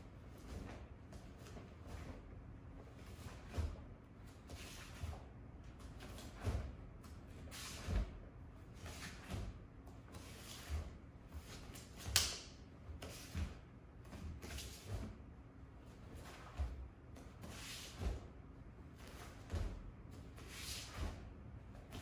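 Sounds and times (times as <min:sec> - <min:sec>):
bare feet thudding on mats: 0:15.9 - 0:21.3.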